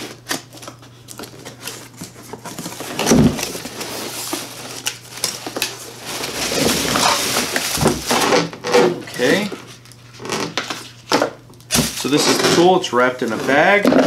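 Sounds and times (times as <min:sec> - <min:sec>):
plastic bag crinkling: 0:01.0 - 0:08.4
cardboard box flaps scraping: 0:06.1 - 0:08.2.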